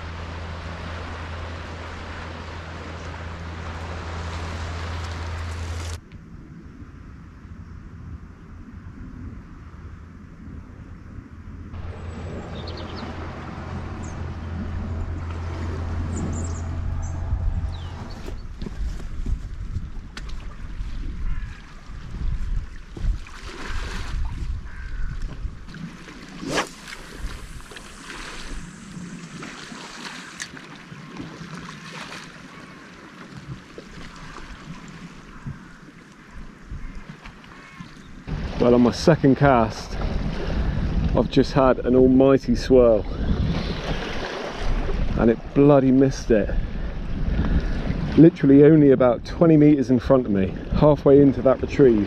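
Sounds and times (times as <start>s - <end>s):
steady low rumble: 0.0s - 20.4s, 38.2s - 43.5s
wind buffeting microphone: 7.8s - 25.8s, 38.0s - 52.0s
high bird chirps: 12.0s - 13.2s, 16.0s - 18.5s.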